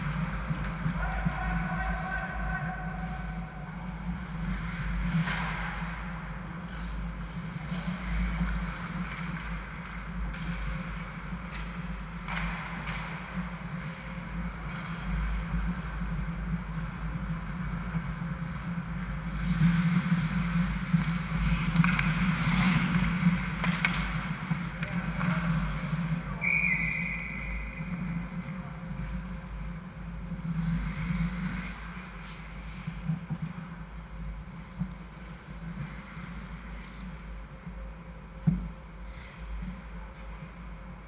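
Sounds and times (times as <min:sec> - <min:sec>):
steady low hum: 0:00.0 - 0:41.0
hockey sticks and puck knocking: 0:07.6 - 0:13.5, 0:19.5 - 0:25.7
skate scrapes on ice: 0:19.4 - 0:26.3.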